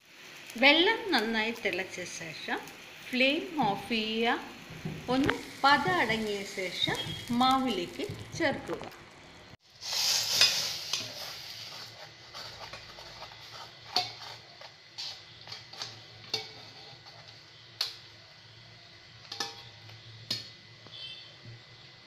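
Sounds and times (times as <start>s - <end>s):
metal spoon scraping steel bowl: 10.3s - 17.4s.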